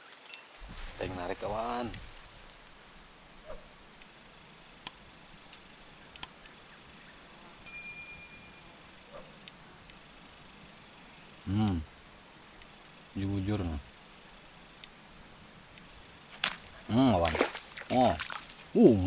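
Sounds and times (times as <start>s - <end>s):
high-pitched insect chorus: 0.0s - 19.0s
faint clicks: 0.6s - 18.9s
short thin tone: 7.7s - 8.6s.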